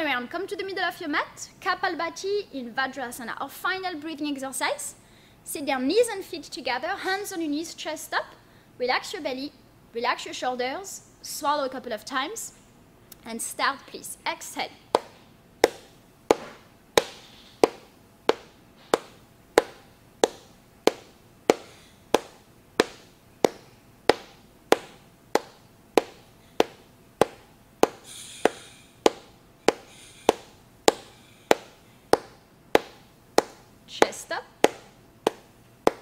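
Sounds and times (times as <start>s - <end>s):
forceful breath exhalations: 21.6s - 22.0s, 27.9s - 29.0s, 29.7s - 32.0s.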